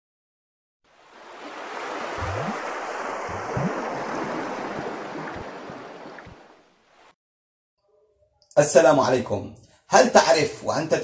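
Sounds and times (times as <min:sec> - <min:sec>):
rushing water: 0:00.9 - 0:07.2
low rising gurgles: 0:01.1 - 0:06.7.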